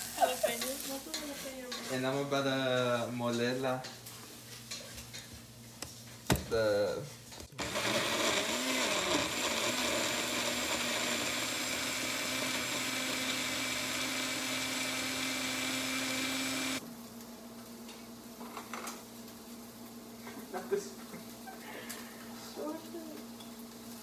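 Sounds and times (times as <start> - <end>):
blender motor running: 7.5 - 16.8.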